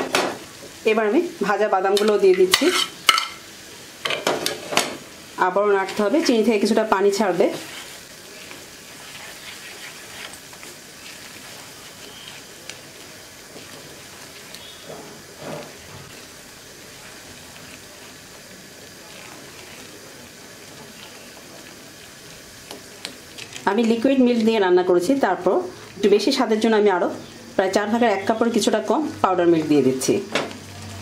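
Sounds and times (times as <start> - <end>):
food sizzling in a frying pan: 0.0 - 31.0
spatula stirring: 2.0 - 3.4, 5.8 - 24.4.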